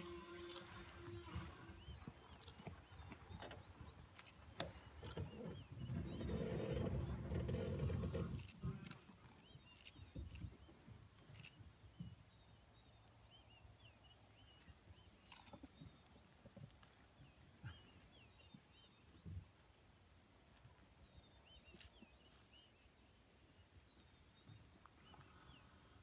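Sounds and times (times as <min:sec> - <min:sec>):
faint bird chirps: 0:11.3 - 0:16.3.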